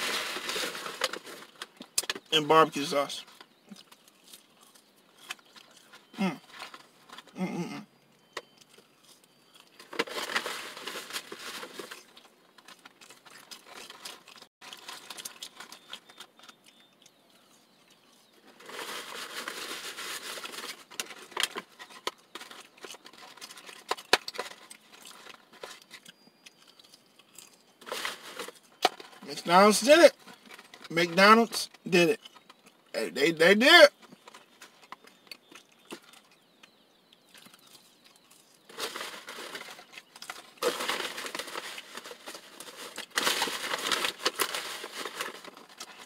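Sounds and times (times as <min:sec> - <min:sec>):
paper carton rustling: 0:00.0 - 0:01.7, 0:38.7 - 0:46.0
quiet chewing: 0:03.3 - 0:10.0, 0:11.8 - 0:18.6, 0:20.3 - 0:28.8, 0:32.2 - 0:33.0, 0:34.0 - 0:39.0
person humming: 0:07.4 - 0:07.8.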